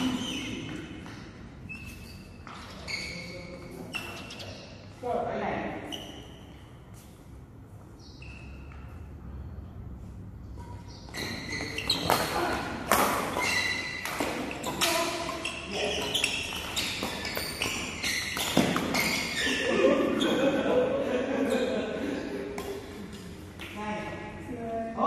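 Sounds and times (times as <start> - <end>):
feet thumping and squeaking: 0.0 - 4.7, 5.8 - 9.2, 10.4 - 20.5
rackets striking shuttlecock: 10.5 - 19.4.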